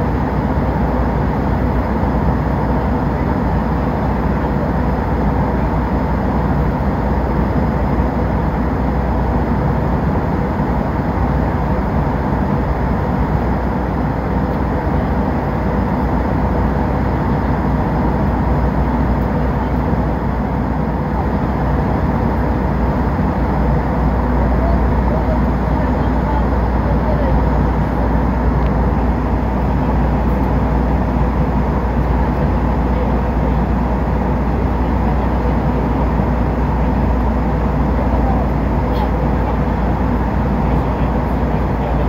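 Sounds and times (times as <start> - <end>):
jet engines and airflow rushing: 0.0 - 42.0.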